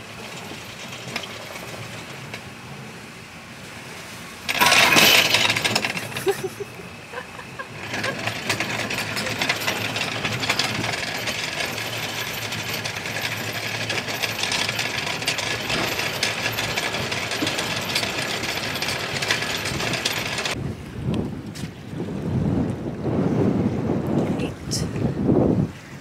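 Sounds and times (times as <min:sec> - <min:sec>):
anchor chain rattling through windlass: 0:00.0 - 0:02.8, 0:04.4 - 0:20.6.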